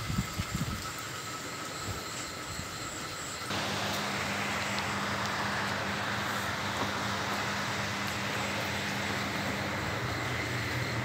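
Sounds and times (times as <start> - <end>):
low hum: 3.5 - 11.0
steady rain falling: 3.5 - 11.0.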